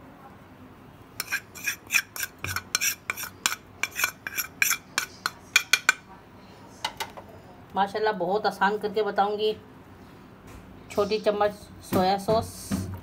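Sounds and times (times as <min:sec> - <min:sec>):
spoon clinking against dishes: 0:01.2 - 0:06.0.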